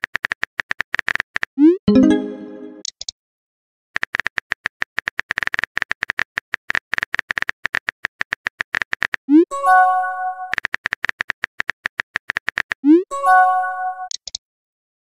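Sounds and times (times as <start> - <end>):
message sent chime: 1.8 - 2.8, 13.1 - 14.1
keyboard typing clicks: 14.0 - 14.4.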